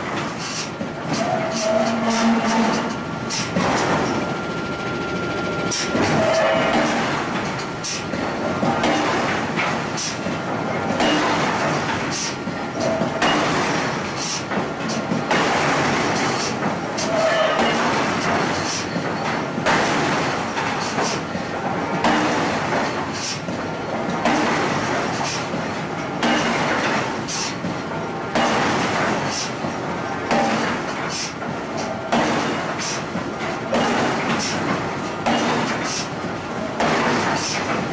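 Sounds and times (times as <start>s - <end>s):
machine running din: 1.1s - 9.7s
power hammer striking steel: 1.2s - 10.1s, 10.9s - 14.4s, 15.2s - 18.9s, 22.0s - 22.5s, 24.2s - 25.4s, 26.2s - 27.5s, 28.3s - 29.4s, 30.3s - 30.7s, 33.7s - 34.6s, 35.2s - 36.1s.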